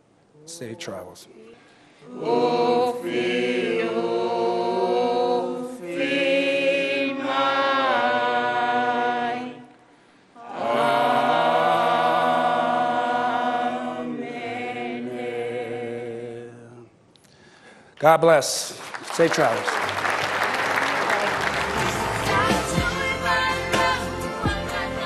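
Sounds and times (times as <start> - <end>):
group singing unaccompanied: 2.0 - 17.0, 21.6 - 25.0.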